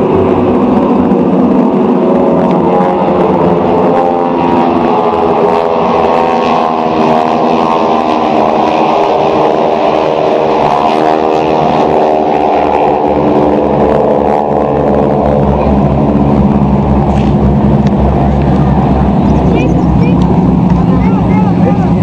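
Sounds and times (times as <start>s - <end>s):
propeller planes passing overhead: 0.0s - 22.0s.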